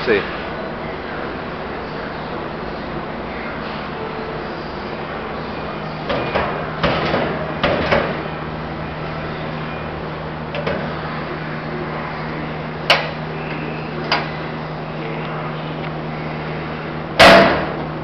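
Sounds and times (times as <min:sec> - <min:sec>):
metal clunks and rattles: 0:06.1 - 0:08.2.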